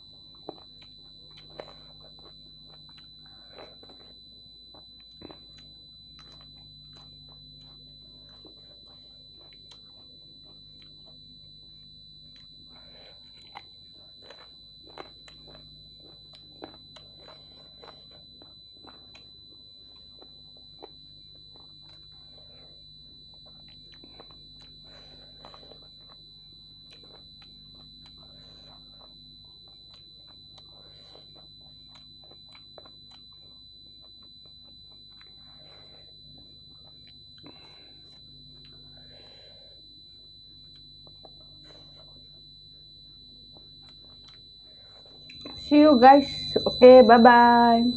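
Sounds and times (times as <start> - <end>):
low hum: 0.0 - 47.9
chewing and wet mouth clicks: 0.4 - 4.1, 4.7 - 11.2, 12.3 - 22.2, 23.4 - 26.2, 26.8 - 35.6, 36.8 - 39.0, 43.5 - 44.4
high-pitched electronic whine: 43.0 - 47.9.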